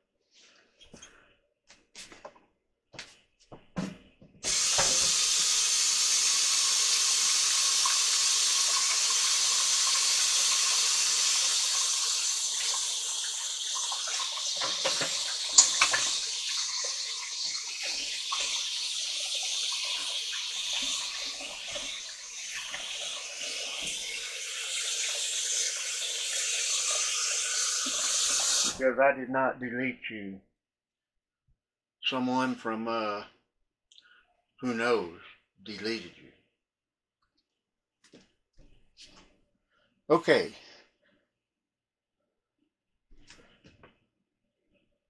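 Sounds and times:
tap water running into sink: 0:04.4 - 0:28.8.

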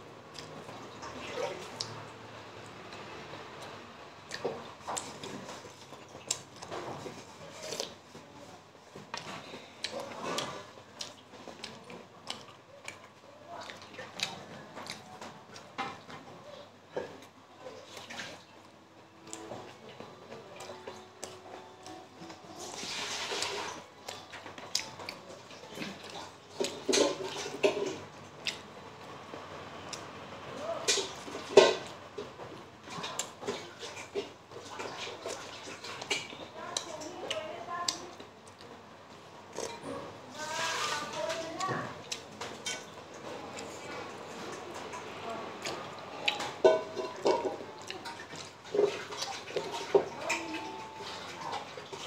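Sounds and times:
chewing and lip-smacking: 0:03.6 - 0:08.0, 0:09.1 - 0:15.8, 0:24.0 - 0:28.7
slurping and chewing: 0:09.1 - 0:15.8, 0:39.5 - 0:40.0, 0:41.6 - 0:52.0.

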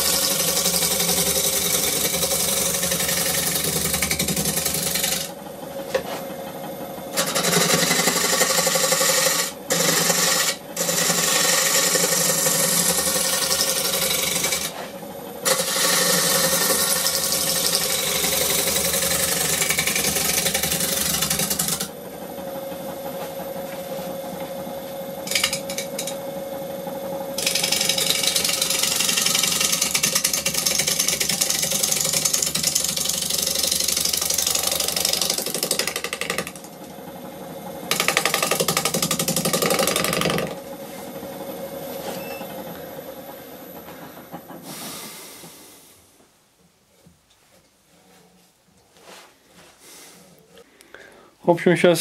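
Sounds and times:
tool cutting wood on lathe: 0:00.0 - 0:22.5, 0:23.1 - 0:36.9, 0:37.8 - 0:43.0
lathe motor hum: 0:00.0 - 0:45.7.

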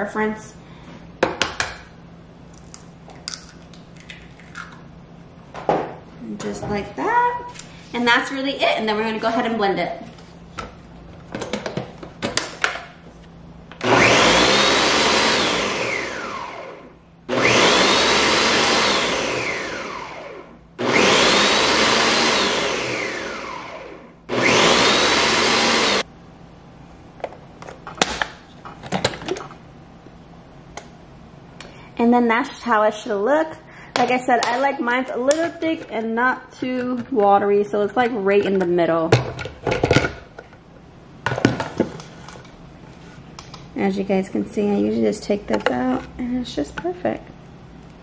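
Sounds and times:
blender motor whining: 0:13.8 - 0:26.0.

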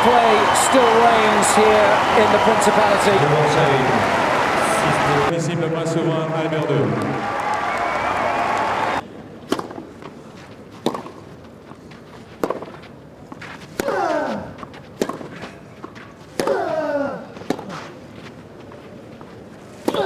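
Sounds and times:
crowd hush: 0:00.0 - 0:05.3, 0:06.9 - 0:09.0
racket striking tennis ball: 0:09.5 - 0:09.9, 0:10.8 - 0:11.2, 0:12.4 - 0:12.8, 0:13.4 - 0:16.8, 0:17.4 - 0:17.8, 0:19.8 - 0:20.0.

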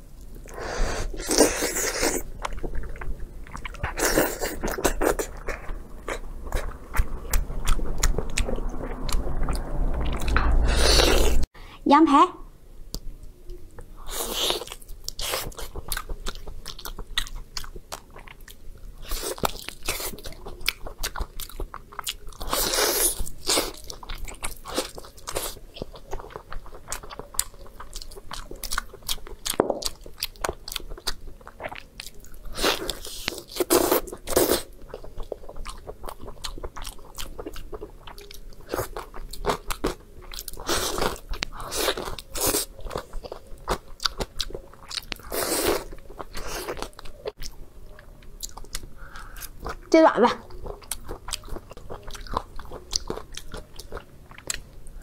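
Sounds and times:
chewing and biting meat: 0:14.2 - 0:47.6, 0:50.5 - 0:54.6.

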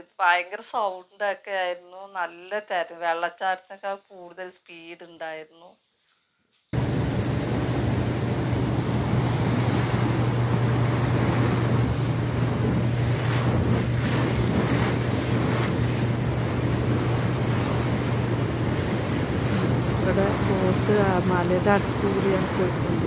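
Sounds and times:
boat engine droning: 0:06.8 - 0:23.0
churning water rushing: 0:06.8 - 0:23.0
wind buffeting microphone: 0:06.8 - 0:23.0.

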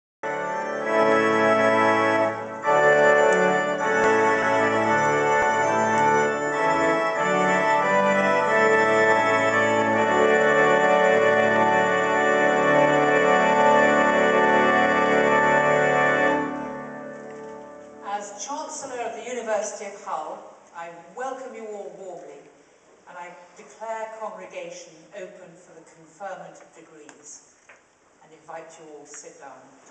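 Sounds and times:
organ playing sustained chords: 0:00.2 - 0:18.4.

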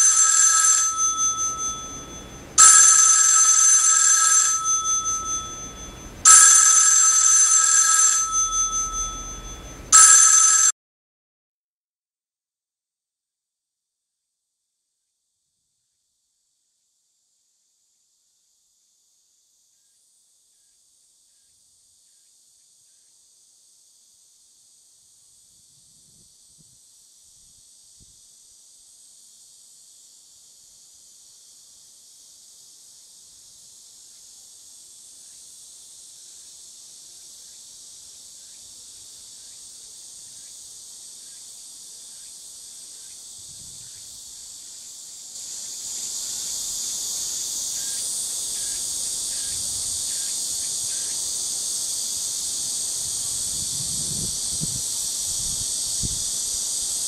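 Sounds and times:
cicada chorus buzzing: 0:00.0 - 0:07.6, 0:08.2 - 0:09.9, 0:22.9 - 0:57.0.

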